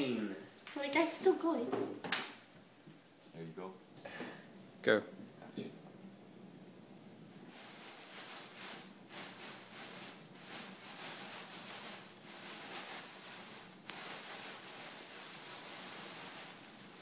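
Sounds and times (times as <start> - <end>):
metal powder fizzing in flame: 7.4 - 17.0.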